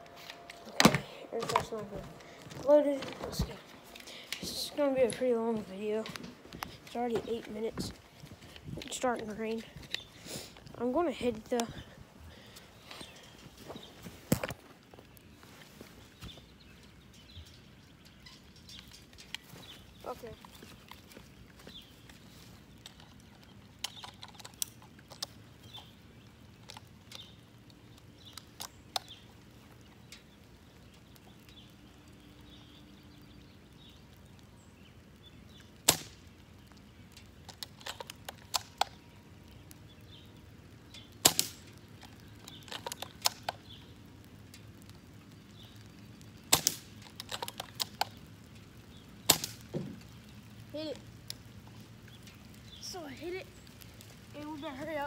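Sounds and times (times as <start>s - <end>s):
airsoft rifle shots: 41.2s - 41.6s, 49.3s - 49.6s
rifle bolt clicks and clacks: 46.5s - 48.1s.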